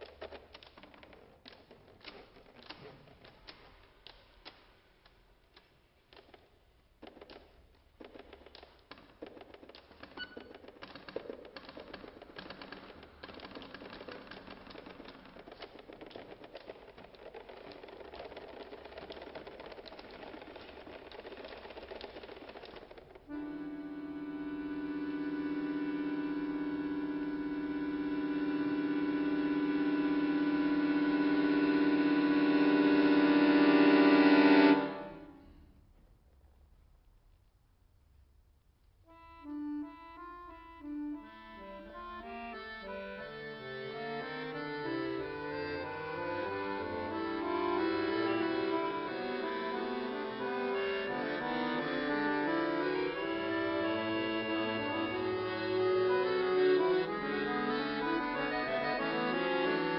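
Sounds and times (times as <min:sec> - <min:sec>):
accordion keys clicking and tapping: 0:00.0 - 0:35.5, 0:39.1 - 0:59.9
faint high accordion note: 0:23.3 - 0:35.4, 0:39.1 - 0:59.9.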